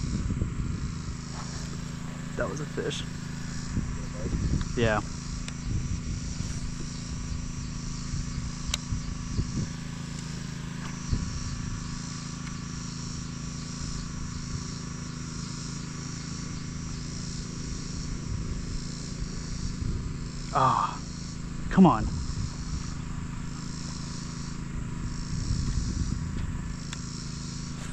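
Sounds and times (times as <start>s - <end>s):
constant low hum: 0.0s - 27.9s
high insect chirring: 0.0s - 27.9s
sharp click: 8.6s - 8.9s.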